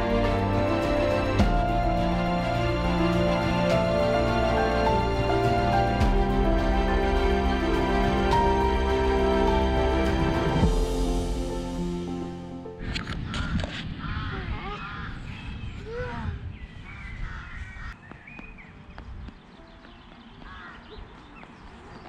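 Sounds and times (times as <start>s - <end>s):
crows cawing: 13.2s - 15.3s, 17.2s - 18.0s, 20.4s - 21.0s.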